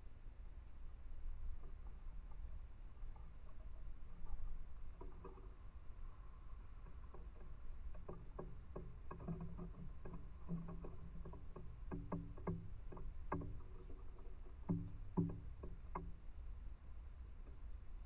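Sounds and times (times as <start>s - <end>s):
squirrel knocking at seed feeder: 7.9s - 16.2s.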